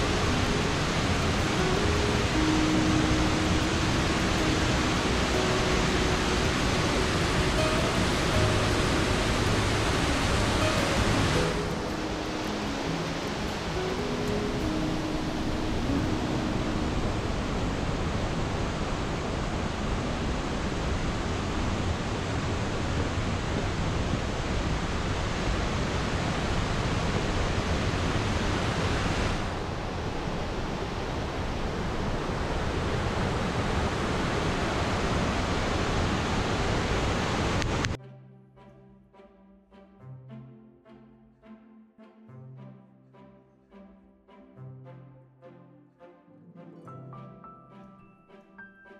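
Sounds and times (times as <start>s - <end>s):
waterfall and river over rocks: 0.0s - 38.0s.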